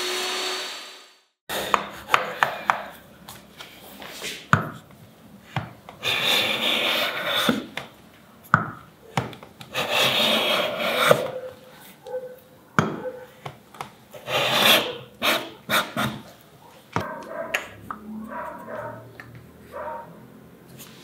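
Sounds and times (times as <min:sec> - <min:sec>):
hand plane shaving wood: 0:06.0 - 0:07.7, 0:09.7 - 0:11.4, 0:14.2 - 0:16.3.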